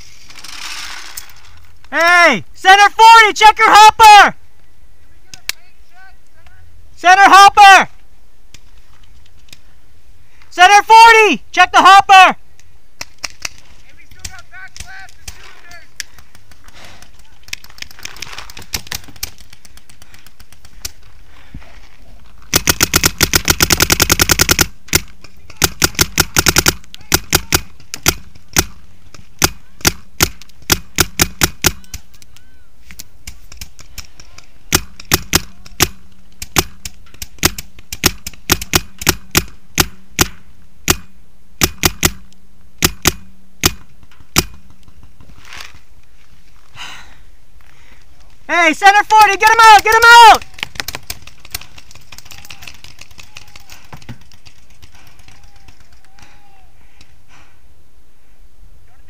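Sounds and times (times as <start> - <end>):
paintball marker firing: 22.5 - 32.2, 32.9 - 45.0.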